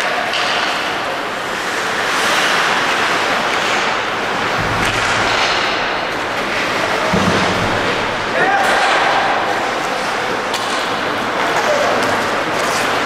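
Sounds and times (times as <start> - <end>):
crowd cheering: 2.7 - 10.9
low rumble: 4.1 - 8.4.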